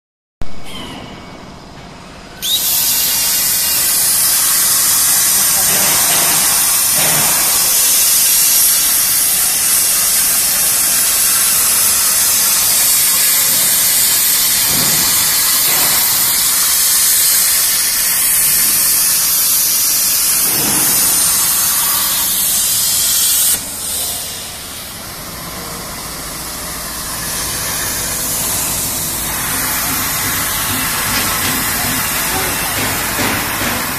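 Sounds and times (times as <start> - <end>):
plasma cutter hissing: 2.4 - 33.9.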